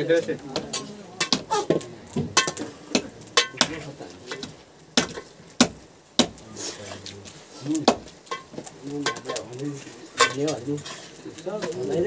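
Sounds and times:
knife chopping meat and bone: 0.5s - 6.4s, 7.7s - 8.1s.

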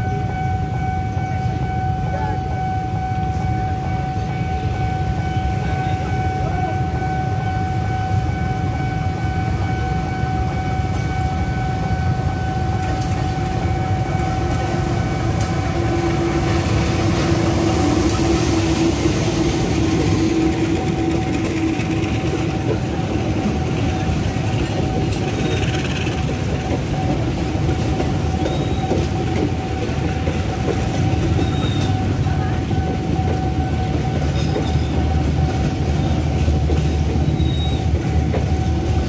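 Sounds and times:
diesel locomotive engine: 0.0s - 39.0s
level crossing warning tone: 0.0s - 39.0s
train wheels clicking over rails: 12.7s - 39.0s.

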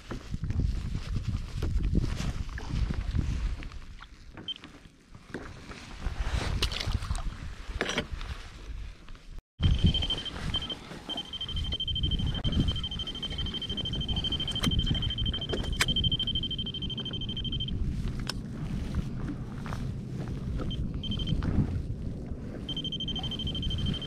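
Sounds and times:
wind and water rumble: 0.0s - 24.0s
high electronic beep tone: 9.6s - 17.8s, 20.7s - 21.4s, 22.7s - 24.0s.

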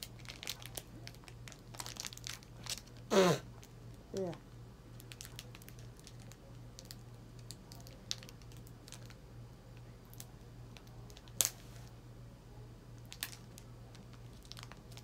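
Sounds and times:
sharp foil crackle: 0.0s - 3.7s, 4.9s - 9.2s, 13.0s - 15.0s
foil wrapper crinkling: 0.0s - 3.8s, 5.0s - 9.2s, 13.1s - 15.0s
low steady hum: 0.0s - 15.0s.

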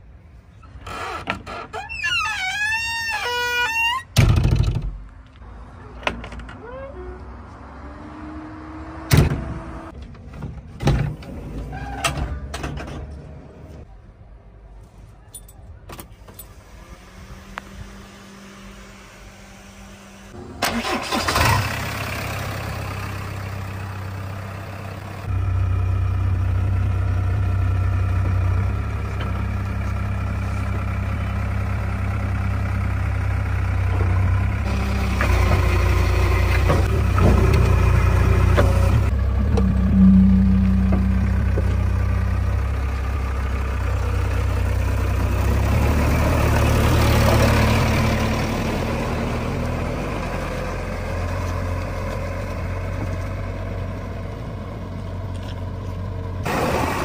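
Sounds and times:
diesel engine running: 16.5s - 57.0s.

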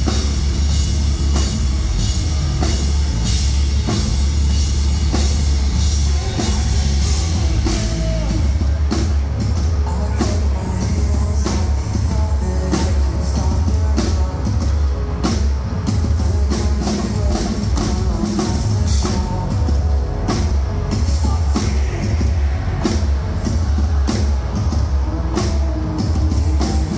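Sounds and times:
metalcore band playing live: 0.0s - 26.9s.

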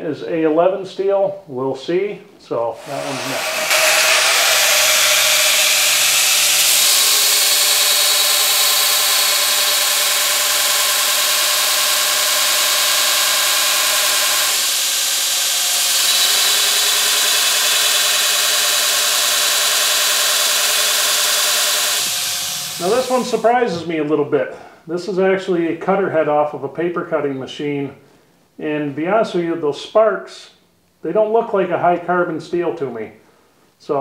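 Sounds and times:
belt grinder grinding steel: 2.8s - 23.7s.

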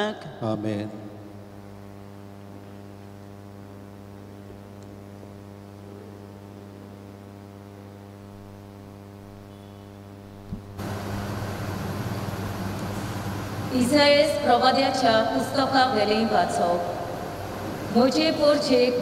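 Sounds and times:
electrical mains hum: 0.0s - 19.0s
loud hiss: 10.8s - 13.8s.

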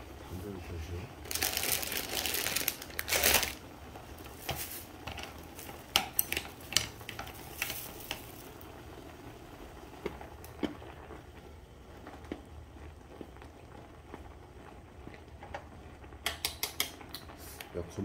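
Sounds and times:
packaging rustling: 1.2s - 3.6s
wooden chopsticks clicking: 16.2s - 17.2s.

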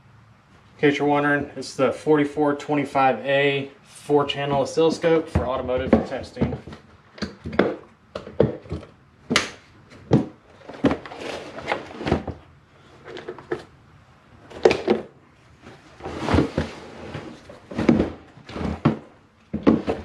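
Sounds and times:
plastic case knocks and scuffs: 5.2s - 12.4s, 17.6s - 20.0s.

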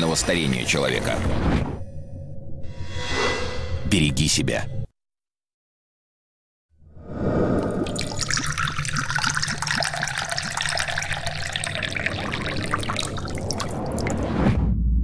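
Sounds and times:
liquid pouring into glass: 7.4s - 14.3s.

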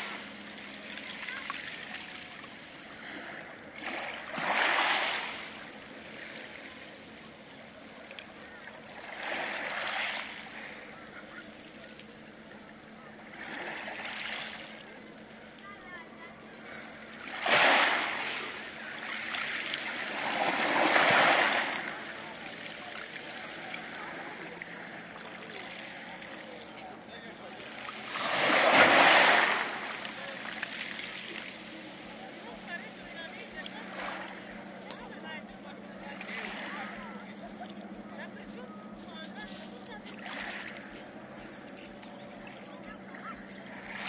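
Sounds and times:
waves washing over pebbles: 0.0s - 12.2s, 12.8s - 15.4s, 16.7s - 37.4s
wave washing on pebble beach: 3.8s - 5.5s, 17.2s - 18.6s, 19.4s - 22.2s, 27.9s - 30.2s.

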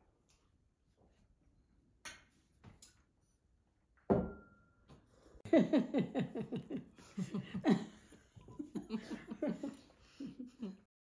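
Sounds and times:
glass knock with brief ring: 4.1s - 4.8s
person laughing: 5.5s - 10.9s.

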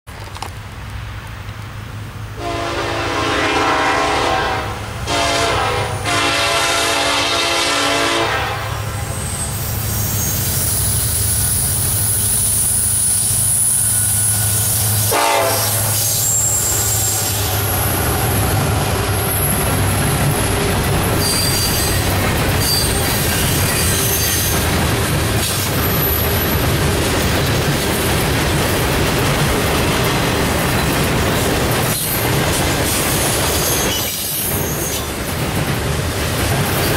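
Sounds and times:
freight train rumble: 0.1s - 36.9s
train horn blasts: 2.4s - 9.2s, 14.0s - 18.0s
high wheel squeal: 9.0s - 24.7s, 33.2s - 35.2s
train wheel clatter: 9.9s - 36.9s.

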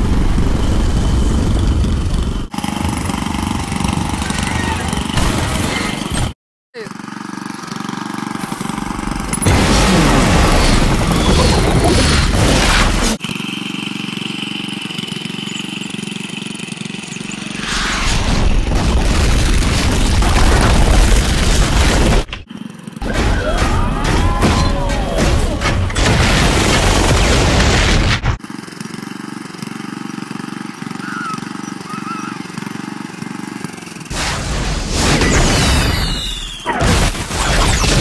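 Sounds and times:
loud explosion sound effect: 0.0s - 2.5s, 9.4s - 13.0s
tractor engine running: 0.0s - 5.4s, 6.9s - 17.6s, 28.4s - 34.2s
rising and falling whistle: 35.9s - 36.8s.

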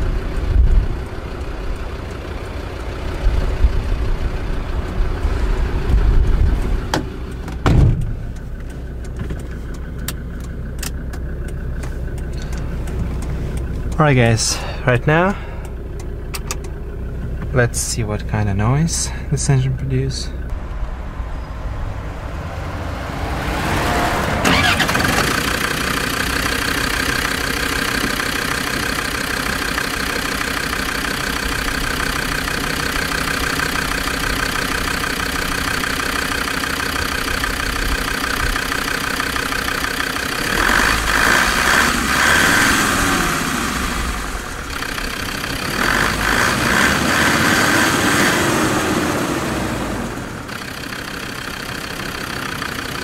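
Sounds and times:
diesel engine starting and idling: 0.0s - 53.0s
engine revving: 17.9s - 53.0s.

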